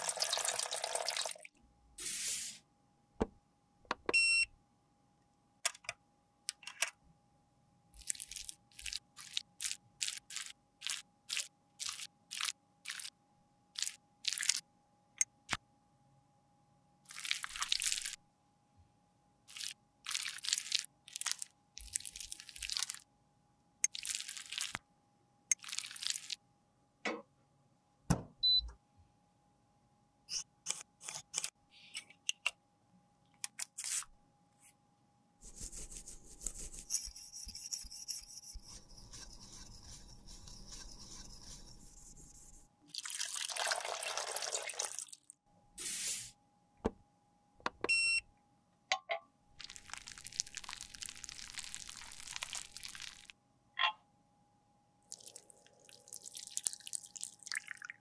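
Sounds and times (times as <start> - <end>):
metal spatula scraping tube: 36.3 - 42.6.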